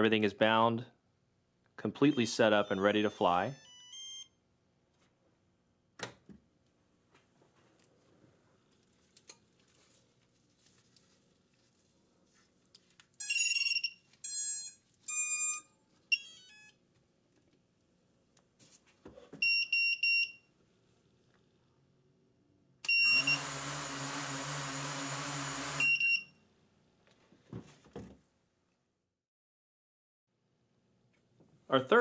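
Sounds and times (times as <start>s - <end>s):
drone motors whirring: 23.0s - 25.9s.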